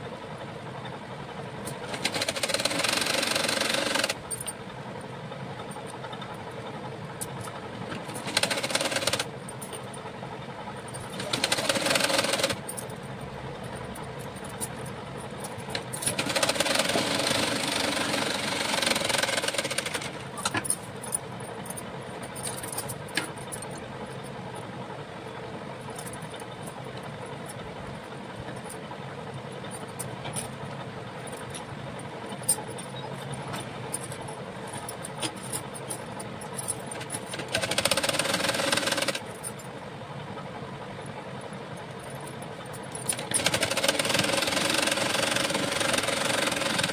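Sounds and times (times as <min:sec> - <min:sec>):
sewing machine stitching: 0:01.8 - 0:04.2, 0:08.0 - 0:09.3, 0:11.1 - 0:12.6, 0:15.7 - 0:20.2, 0:37.3 - 0:39.2, 0:43.1 - 0:46.9.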